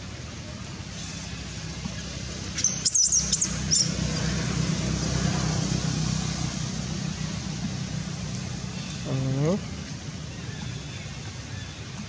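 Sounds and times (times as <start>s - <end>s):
low background noise: 0.0s - 12.0s
baby monkey squealing: 2.6s - 3.9s.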